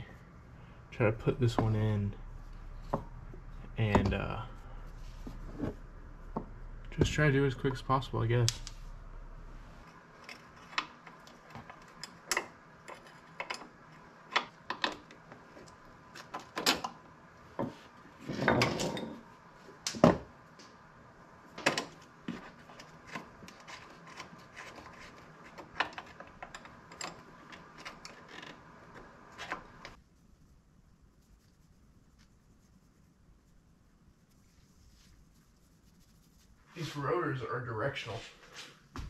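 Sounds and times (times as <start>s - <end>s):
tools clicking and clinking on metal: 10.2s - 13.7s.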